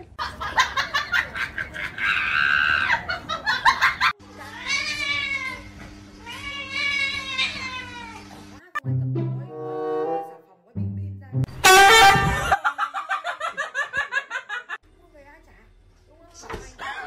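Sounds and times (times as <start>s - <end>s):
cat meowing: 4.5s - 8.4s.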